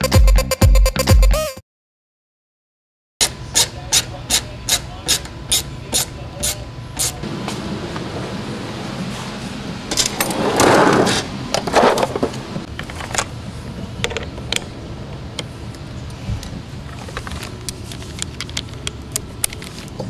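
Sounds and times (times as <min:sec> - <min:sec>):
metal drawer sliding: 0:09.1 - 0:12.7
clicks and taps of tools: 0:17.1 - 0:20.0.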